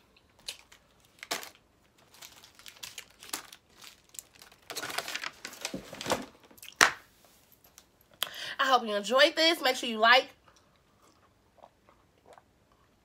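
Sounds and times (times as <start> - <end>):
plastic wrapper crinkling: 0.4 - 7.0.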